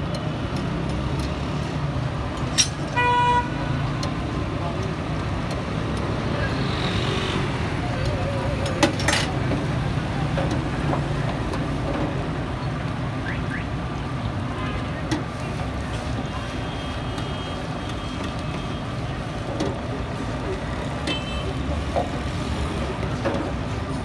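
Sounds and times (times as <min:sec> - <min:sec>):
street traffic rumble: 0:00.0 - 0:24.0
background voices: 0:04.2 - 0:12.1.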